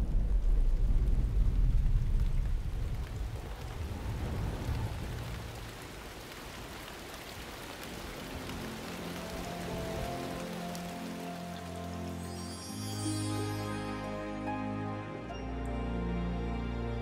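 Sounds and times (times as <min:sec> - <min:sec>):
deep rolling thunder: 0:00.0 - 0:06.2
steady hissing rainfall: 0:00.0 - 0:17.0.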